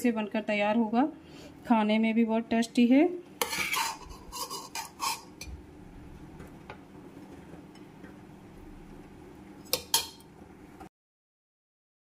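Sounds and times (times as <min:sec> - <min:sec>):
metal spoon clinking on pot: 0:09.7 - 0:10.2.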